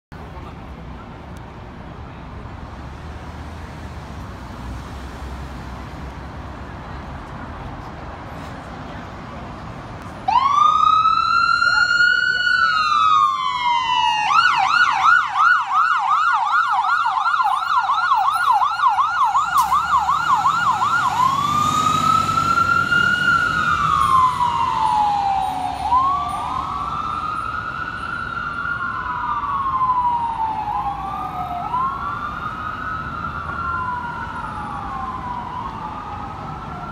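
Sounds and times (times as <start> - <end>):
fire engine siren: 10.0 - 36.9
second siren wail: 10.3 - 36.9
truck engine rumbling: 17.4 - 36.9.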